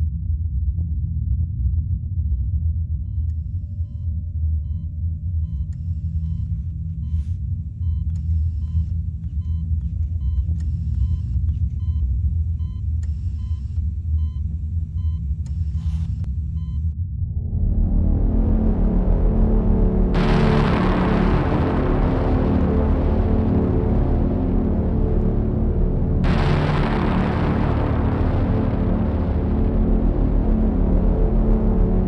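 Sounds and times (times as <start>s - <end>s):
low rumble: 0.0s - 32.0s
patient monitor beeping: 2.4s - 17.0s.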